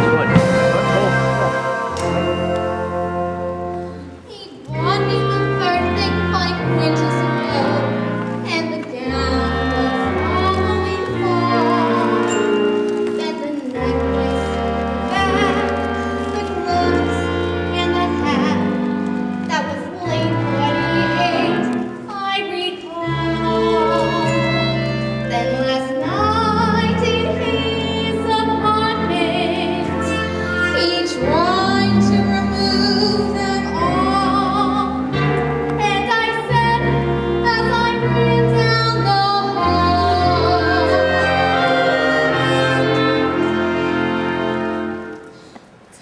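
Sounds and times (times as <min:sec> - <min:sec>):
orchestra playing: 0:00.0 - 0:45.6
women singing: 0:35.8 - 0:43.4.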